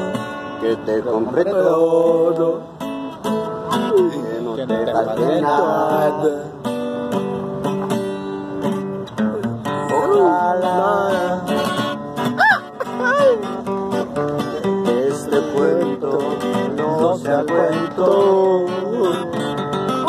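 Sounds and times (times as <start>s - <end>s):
acoustic guitar: 0.0s - 20.0s
man's wordless vocal: 9.4s - 11.4s.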